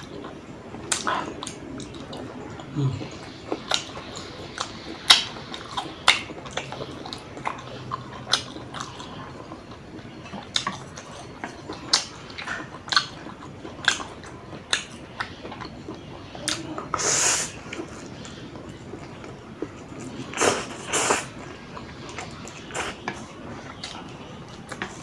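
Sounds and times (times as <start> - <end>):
chewing with mouth clicks: 0.0 - 25.0
noodle slurp: 20.2 - 21.4.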